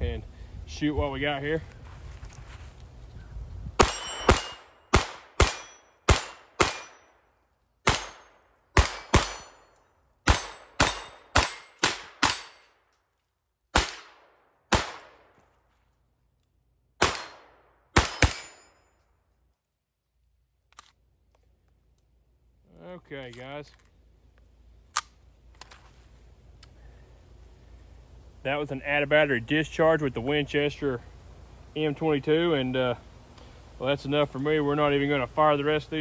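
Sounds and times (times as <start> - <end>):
pistol shots: 3.8 - 7.1, 7.8 - 9.7, 10.3 - 12.7, 13.7 - 15.4, 17.0 - 18.8.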